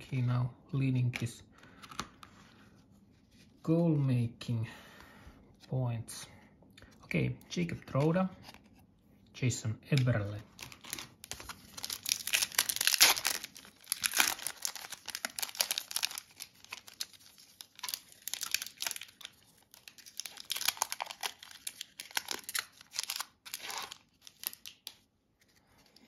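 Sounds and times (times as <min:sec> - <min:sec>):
foil wrappers crinkling and tearing: 0:10.5 - 0:25.0.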